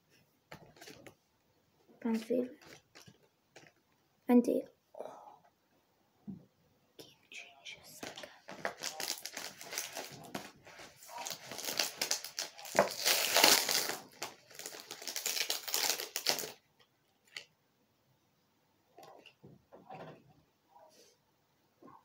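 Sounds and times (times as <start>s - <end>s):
cards being shuffled: 2.1s - 3.8s, 8.0s - 16.6s
foil wrappers crinkling: 2.6s - 3.8s, 8.1s - 16.6s.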